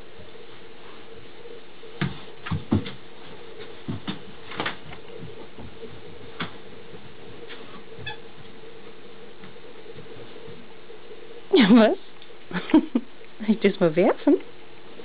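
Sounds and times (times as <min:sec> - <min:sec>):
steady background hum: 0:00.0 - 0:15.0
dull thumps of dog playing: 0:02.0 - 0:08.6.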